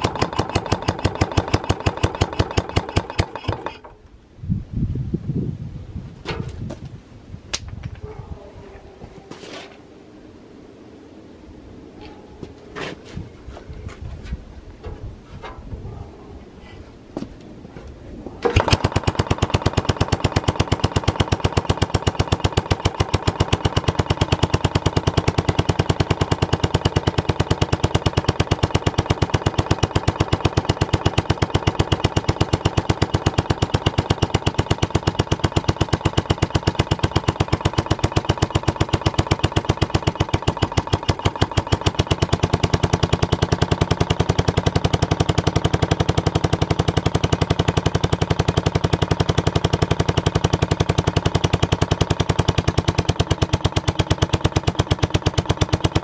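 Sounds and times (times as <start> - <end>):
sharp exhaust reports: 0.0 - 3.9, 18.4 - 56.0
single-cylinder engine running: 0.0 - 3.9, 18.4 - 56.0.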